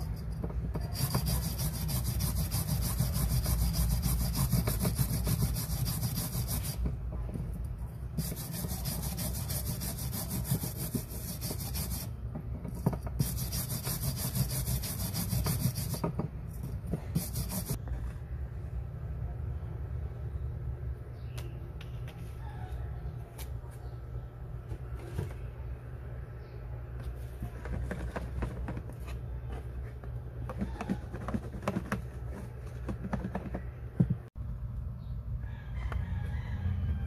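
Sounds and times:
wire brush scrubbing metal coin: 0:00.0 - 0:06.9, 0:08.2 - 0:12.1, 0:13.1 - 0:16.1, 0:17.2 - 0:17.8.

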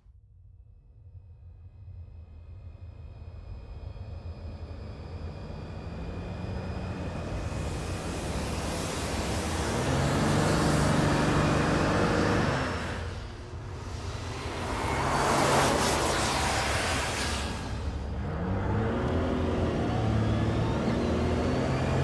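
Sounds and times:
road noise: 0:05.4 - 0:22.0
car driving past: 0:08.3 - 0:22.0.

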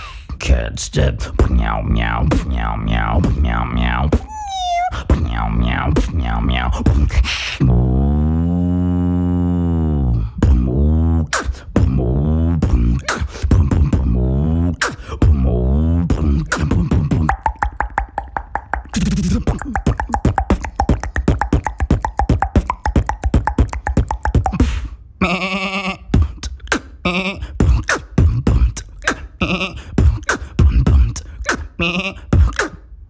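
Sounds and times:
beatbox rhythm: 0:00.0 - 0:33.0
person imitating cow moo: 0:15.4 - 0:26.1, 0:29.4 - 0:29.9, 0:31.8 - 0:32.3.

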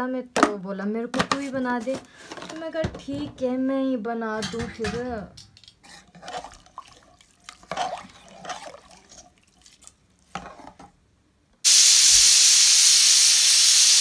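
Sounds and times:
ladle scraping a pot: 0:05.8 - 0:10.9
pressure cooker steam hissing: 0:11.6 - 0:14.0.

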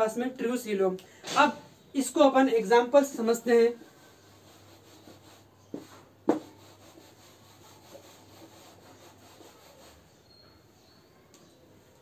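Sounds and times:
duster rubbing on whiteboard: 0:03.7 - 0:10.4.

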